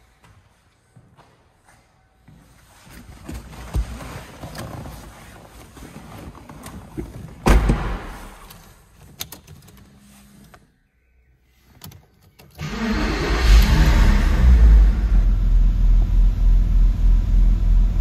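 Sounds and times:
rustling and handling noise: 0.8 - 7.5.

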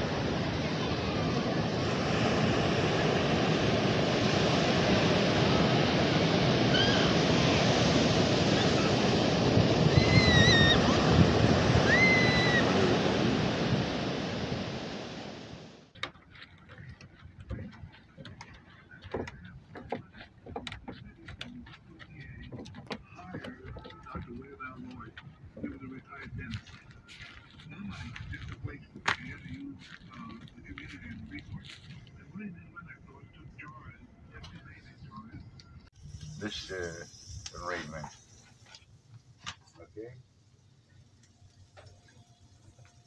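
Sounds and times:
surf breaking on beach: 0.0 - 15.9.

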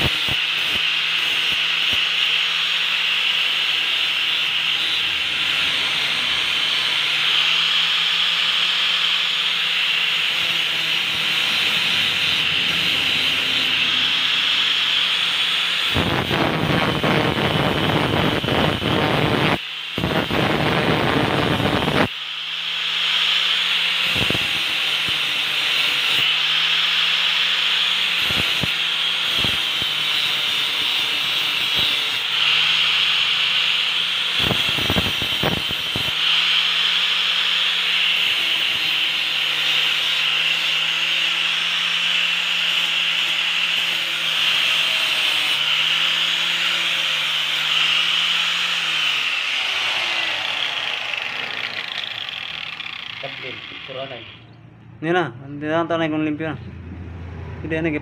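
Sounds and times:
angle grinder grinding metal: 0.0 - 54.6.

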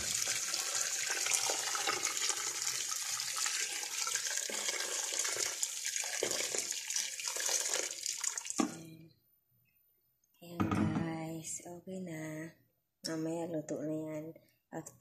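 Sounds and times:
water pouring into metal pot: 0.0 - 8.6.

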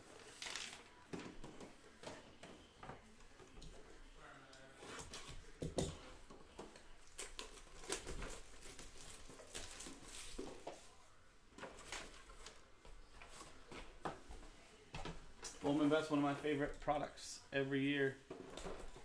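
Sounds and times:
plastic shrink-wrap tearing and crinkling: 0.2 - 0.9, 7.0 - 10.4.

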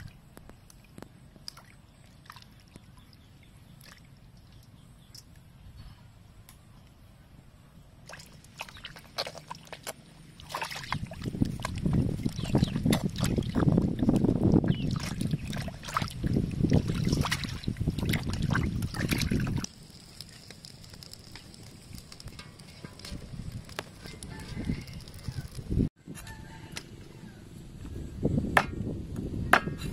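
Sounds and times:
water sloshing in a steel bowl: 8.1 - 19.6.

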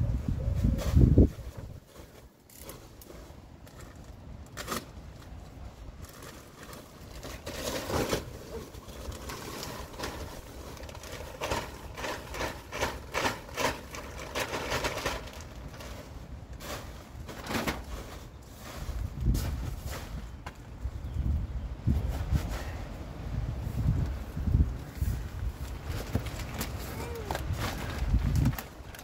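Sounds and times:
plastic bag crinkling: 6.0 - 16.1.

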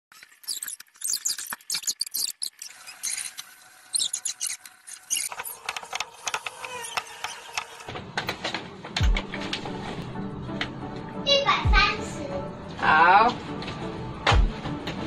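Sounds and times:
spatula scraping plastic bowl: 4.0 - 7.9.

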